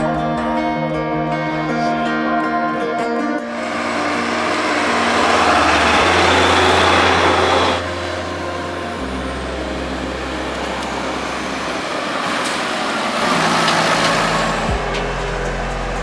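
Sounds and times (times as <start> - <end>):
tractor diesel engines passing: 3.4 - 16.0.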